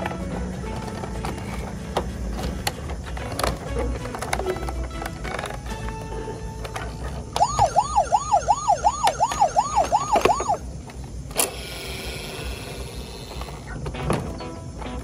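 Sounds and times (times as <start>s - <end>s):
toy siren wailing: 7.3s - 10.7s.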